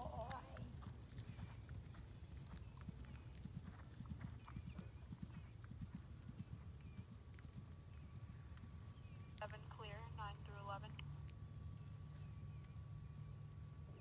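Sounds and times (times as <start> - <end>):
horse hoofbeats on grass: 0.0 - 9.7.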